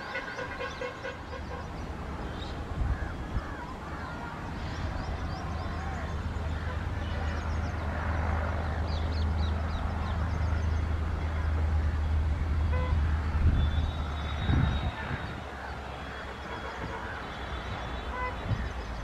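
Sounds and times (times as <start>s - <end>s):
diesel locomotive engine drone: 0.0s - 19.0s
train horn toot: 12.7s - 13.0s.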